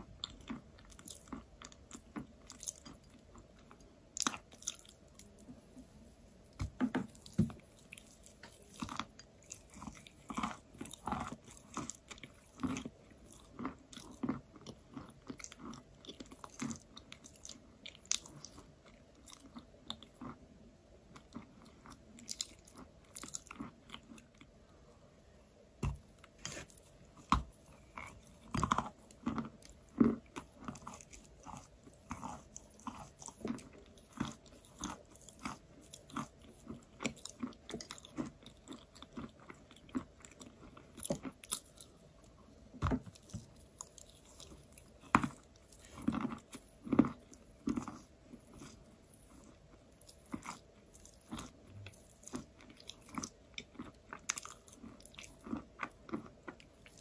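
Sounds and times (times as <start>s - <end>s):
chewing crunchy chalk: 26.4s - 42.0s, 42.9s - 57.0s.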